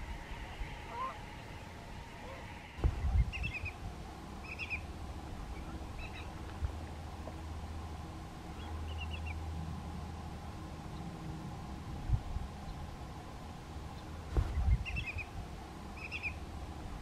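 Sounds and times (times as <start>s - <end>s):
shorebirds whistling: 0.0s - 3.8s, 4.4s - 4.9s, 5.5s - 6.4s, 14.0s - 15.3s, 15.9s - 16.4s
low rumble: 0.0s - 17.0s.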